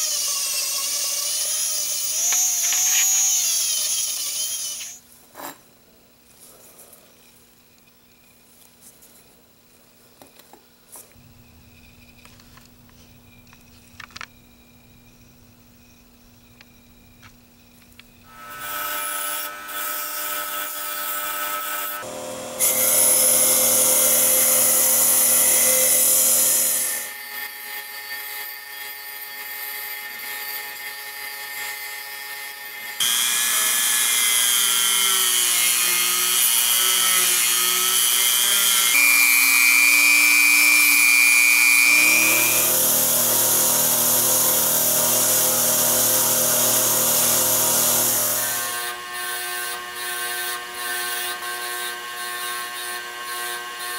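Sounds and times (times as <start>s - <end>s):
rotary tool whining: 0.0s - 5.0s, 15.8s - 53.9s
wire wheel grinding brass: 35.4s - 48.8s.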